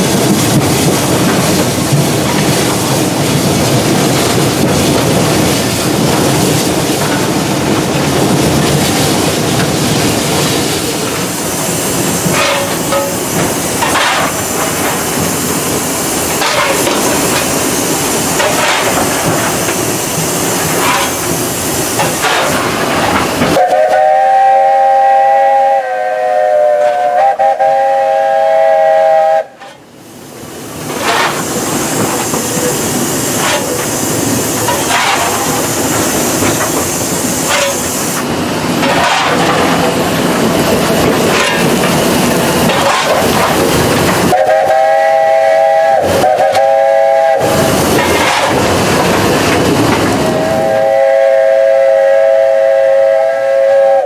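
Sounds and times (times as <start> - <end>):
steam locomotive whistle chord: 23.6 - 29.6, 44.3 - 47.8, 50.3 - 54.0.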